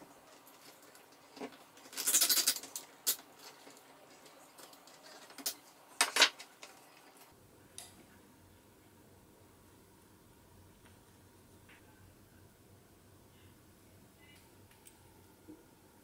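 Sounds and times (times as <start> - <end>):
rustling of cables: 0.0 - 7.4.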